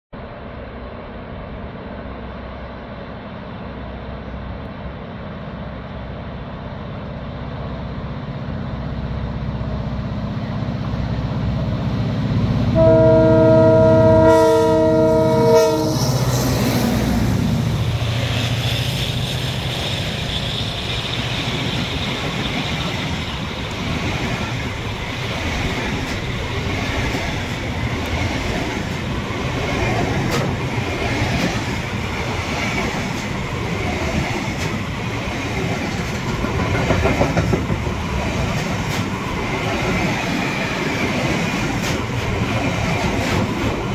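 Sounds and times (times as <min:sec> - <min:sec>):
diesel locomotive engine running: 0:00.2 - 0:43.9
train wheels rumbling on rails: 0:00.4 - 0:43.9
locomotive horn: 0:12.8 - 0:16.4.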